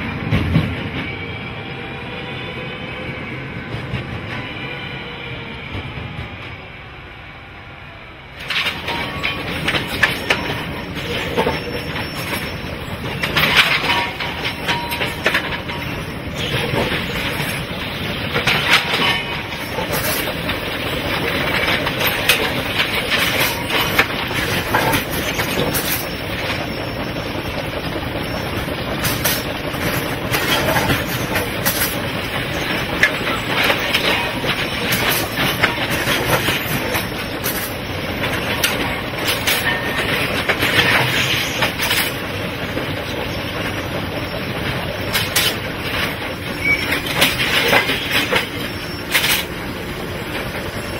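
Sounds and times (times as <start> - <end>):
concrete sleepers clanking: 8.4 - 50.9
steady machinery noise: 8.4 - 50.9.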